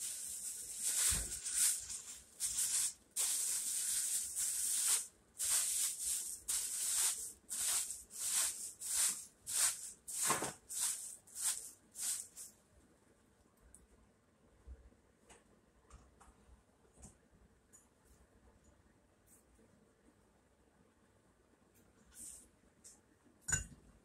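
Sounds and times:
plastic bag rustling and crinkling: 0.0 - 12.5.

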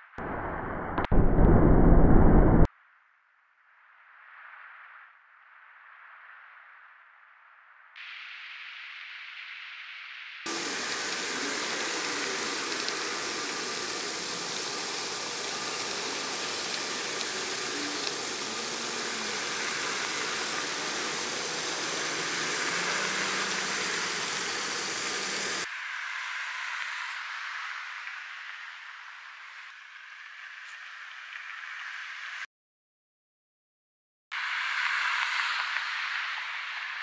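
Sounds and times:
soft hiss: 8.0 - 32.4
loud rushing hiss: 10.5 - 25.9.

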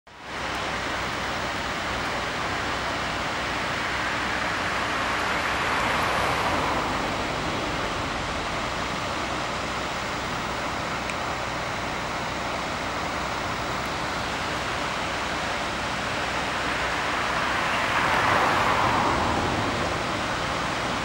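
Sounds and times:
engines and pumps humming: 0.1 - 21.0.

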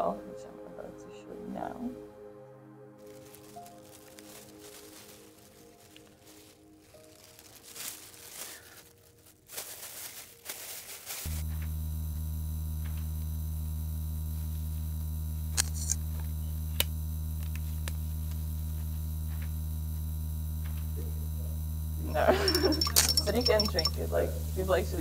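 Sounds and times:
electrical mains hum: 11.1 - 25.0.

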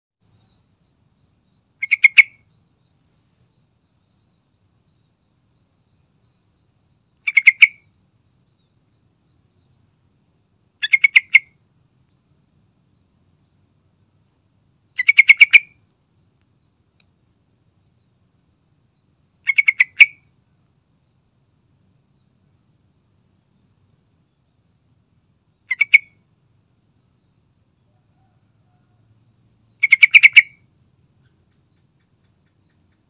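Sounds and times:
bulbul singing: 0.2 - 10.1, 10.8 - 14.0, 17.9 - 20.3, 25.6 - 26.2, 29.7 - 33.0.

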